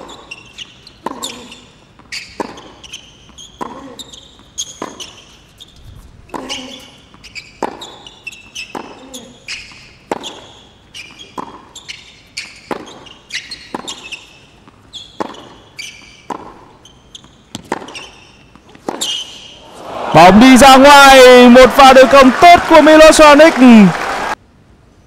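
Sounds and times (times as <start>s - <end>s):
sneakers squeaking on court: 0.0s - 19.6s
racket hitting tennis ball: 2.0s - 3.9s, 4.7s - 5.1s, 7.6s - 8.0s, 8.7s - 9.0s, 9.8s - 10.5s, 12.6s - 13.1s, 13.7s - 16.8s, 17.5s - 19.9s.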